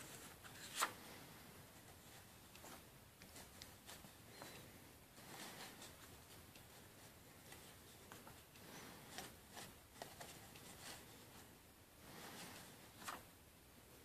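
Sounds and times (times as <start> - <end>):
comic book pages turning: 0.0 - 1.0, 12.4 - 13.3.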